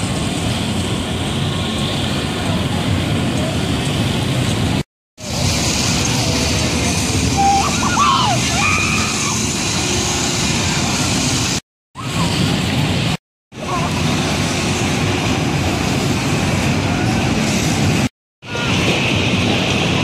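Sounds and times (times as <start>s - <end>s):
ride machinery rumble and whoosh: 0.0s - 20.0s
short high cries: 7.3s - 9.5s.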